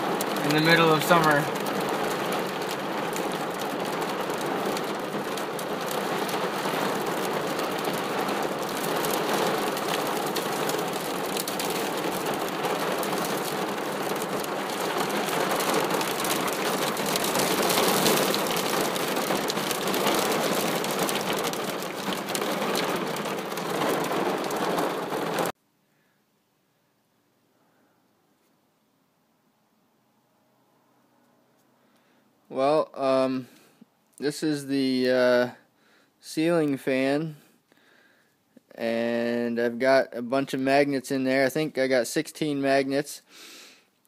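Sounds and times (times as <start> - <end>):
hail and rain on car roof: 0.0 - 25.5.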